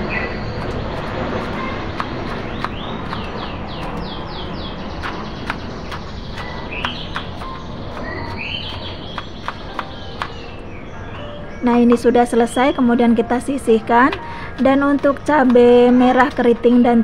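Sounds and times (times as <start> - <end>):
bird chirping: 0.0 - 17.0
steady background noise: 0.0 - 17.0
knife tapping on cutting board: 5.0 - 10.4.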